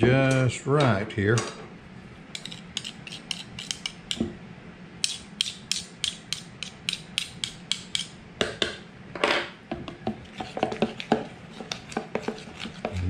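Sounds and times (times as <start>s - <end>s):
spoon scraping through batter: 2.4s - 4.0s, 10.2s - 13.0s.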